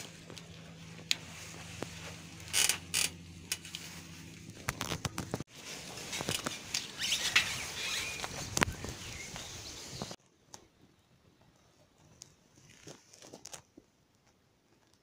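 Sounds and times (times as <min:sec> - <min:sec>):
bicycle creaking: 0:00.0 - 0:10.2
bicycle parts clicking and rattling: 0:01.8 - 0:03.9, 0:06.1 - 0:08.7.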